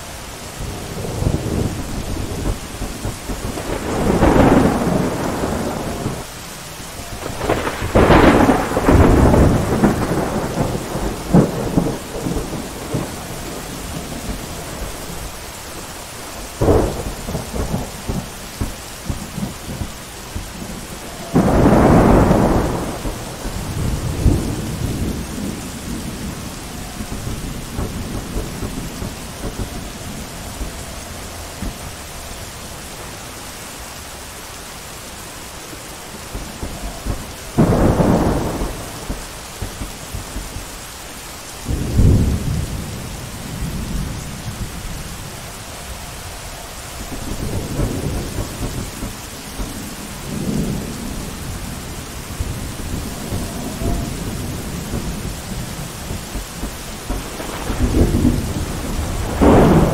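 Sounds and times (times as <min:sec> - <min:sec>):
steady rain: 0:00.0 - 0:59.9
thunder rumbling: 0:00.0 - 0:59.9
sharp thunder cracks: 0:00.6 - 0:06.3, 0:07.0 - 0:15.3, 0:16.6 - 0:32.1, 0:36.1 - 0:40.6, 0:41.6 - 0:45.3, 0:47.0 - 0:59.9.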